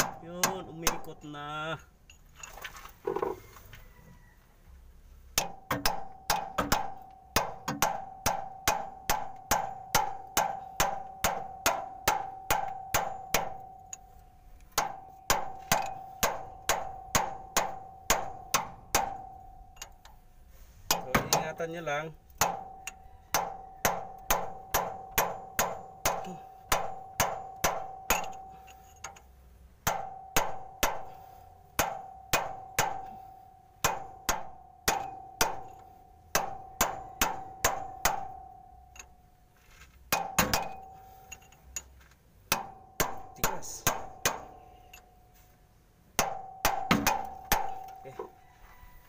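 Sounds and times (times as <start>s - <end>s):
hammer striking steel chisel: 0.0s - 1.3s, 5.4s - 20.2s, 20.9s - 39.2s, 40.1s - 41.9s, 42.5s - 45.2s, 46.2s - 48.4s.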